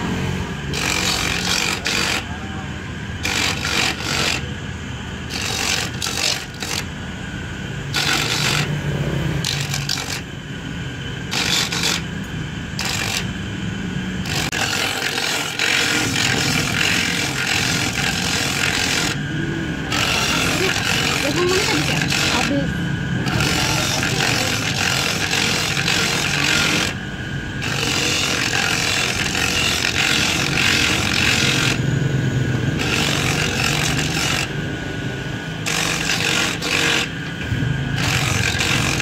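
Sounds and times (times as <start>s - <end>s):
coconut rasping scrapes: 0.0s - 2.4s, 3.2s - 4.5s, 5.3s - 6.9s, 7.9s - 10.3s, 11.3s - 12.1s, 12.8s - 13.3s, 14.2s - 19.3s, 19.9s - 27.0s, 27.6s - 31.9s, 32.8s - 34.6s, 35.6s - 37.2s, 38.0s - 39.0s
electric grater motor humming: 0.0s - 39.0s.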